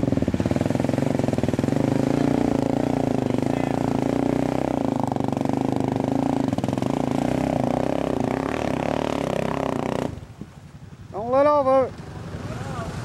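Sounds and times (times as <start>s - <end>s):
atv engine running: 0.0s - 13.0s.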